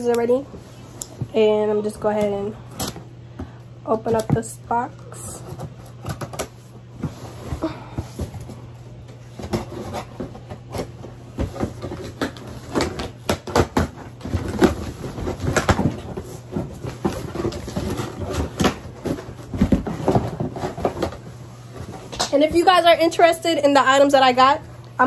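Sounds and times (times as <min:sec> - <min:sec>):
cardboard and plastic rustling: 0:00.0 - 0:25.0.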